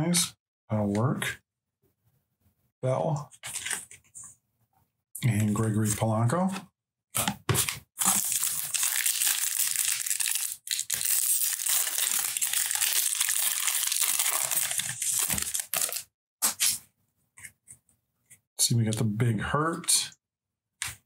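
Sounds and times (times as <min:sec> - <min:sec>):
foil wrapper tearing and crinkling: 0:08.0 - 0:16.8.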